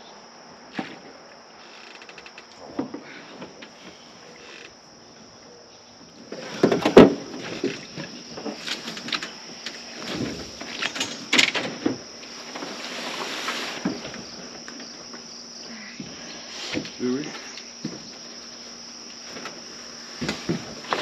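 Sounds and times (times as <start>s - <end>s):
crickets trilling: 0.0s - 21.0s
footsteps on deck boards: 16.0s - 18.3s.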